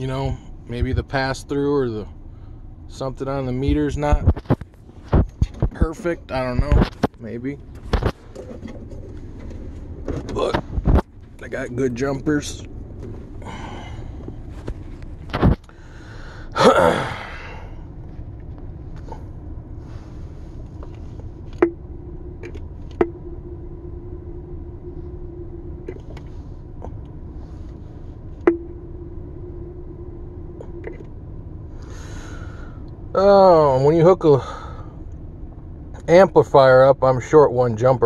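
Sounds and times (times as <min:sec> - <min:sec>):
low steady hum: 0:00.0 - 0:38.0
faint steady tone: 0:11.3 - 0:38.0
person sneezing: 0:16.6 - 0:17.7.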